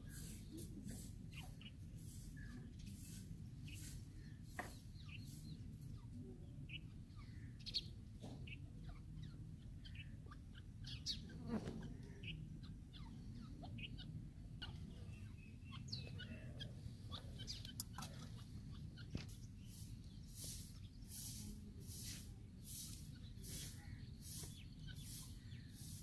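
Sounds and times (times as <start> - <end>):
francolins chirping: 0.0 - 26.0.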